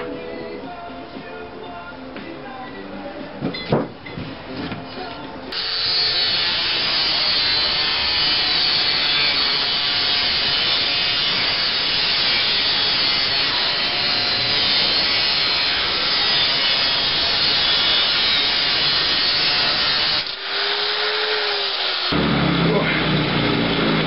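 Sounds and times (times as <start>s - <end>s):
angle grinder cutting metal can: 5.5s - 24.0s.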